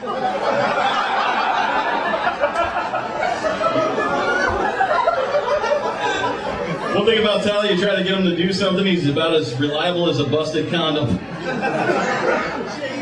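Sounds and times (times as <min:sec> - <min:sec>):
audience laughing: 0:00.0 - 0:08.2, 0:11.0 - 0:13.0.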